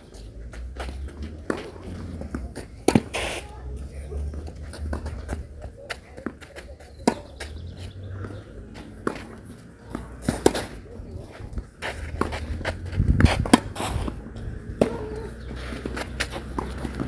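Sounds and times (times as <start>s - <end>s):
shoes moving on clay: 0.0s - 17.0s
ball bouncing: 0.5s - 3.2s, 4.2s - 7.6s, 11.8s - 17.0s
racket hitting tennis ball: 0.6s - 17.0s.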